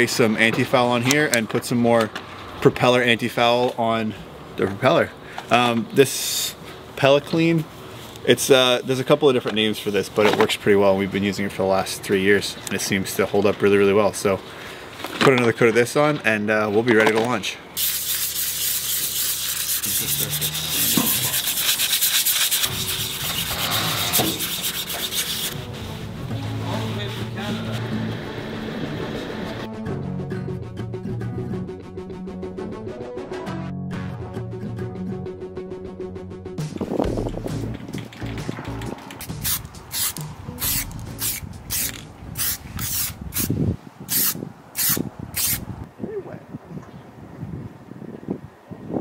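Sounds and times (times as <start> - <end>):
aerosol spray can hissing: 17.8 - 23.5, 39.2 - 45.6
abrasive pad scrubbing metal blades: 17.8 - 25.9.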